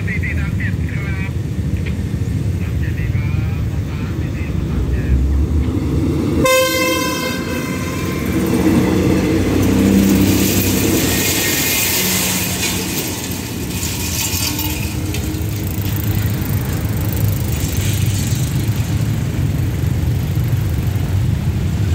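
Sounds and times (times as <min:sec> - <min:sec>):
low engine rumble: 0:00.0 - 0:21.9
wheels clattering on rails: 0:00.0 - 0:21.9.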